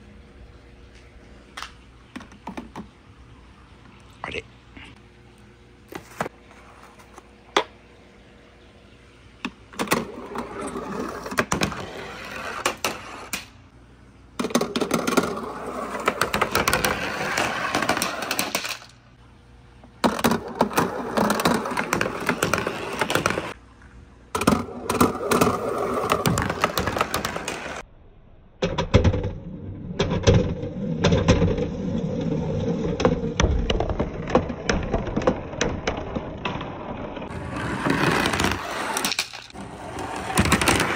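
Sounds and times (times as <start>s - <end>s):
balls rattling down wooden track: 14.4s - 19.0s, 20.0s - 23.6s, 24.4s - 27.8s, 28.6s - 40.9s.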